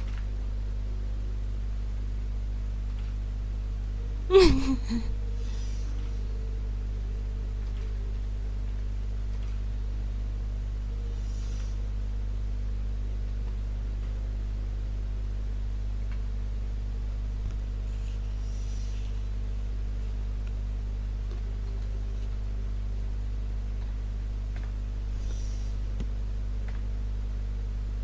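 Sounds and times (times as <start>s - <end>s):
low electrical hum: 0.0s - 28.0s
faint hiss: 9.0s - 12.8s.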